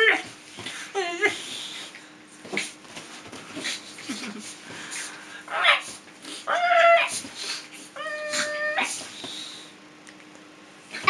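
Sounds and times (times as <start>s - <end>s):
small dog whining: 5.5s - 9.1s.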